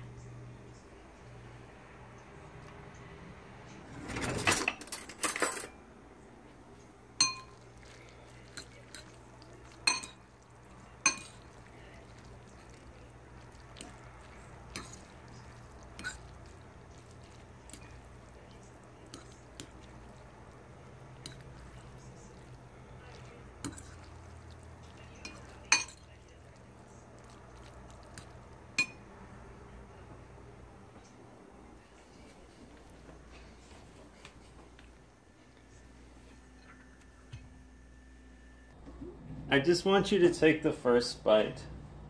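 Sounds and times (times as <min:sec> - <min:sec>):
utensil clinking against ceramic bowl: 0:07.2 - 0:18.3, 0:21.2 - 0:26.2, 0:27.2 - 0:29.1.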